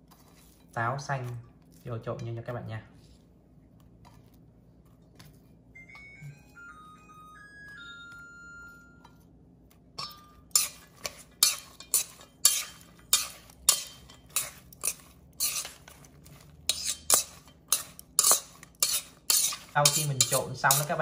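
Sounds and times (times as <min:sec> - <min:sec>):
metal tongs clinking on bowl: 0:11.4 - 0:15.8, 0:16.7 - 0:21.0.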